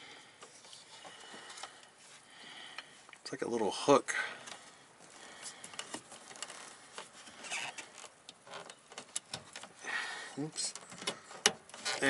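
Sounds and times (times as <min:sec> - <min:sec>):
faint metallic clicks and rattles: 0:05.5 - 0:09.8.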